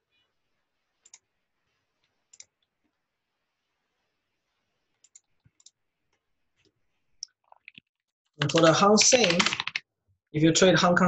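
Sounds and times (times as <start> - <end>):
computer mouse clicks: 1.0 - 1.2, 2.3 - 2.6, 5.0 - 5.8.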